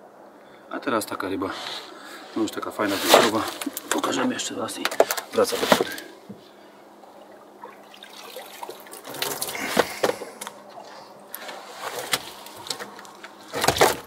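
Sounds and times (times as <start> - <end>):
water splashing and dripping: 7.1 - 10.0.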